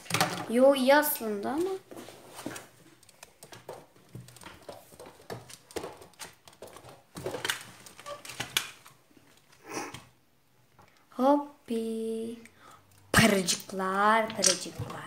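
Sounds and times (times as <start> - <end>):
handling clicks and rustles: 1.6 - 9.5.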